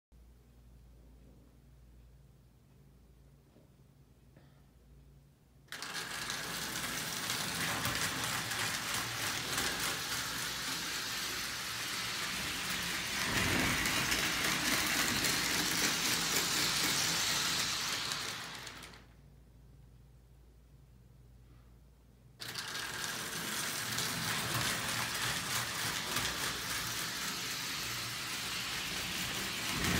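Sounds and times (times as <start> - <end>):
toy train whirring clatter: 5.7 - 19.2, 22.4 - 29.9.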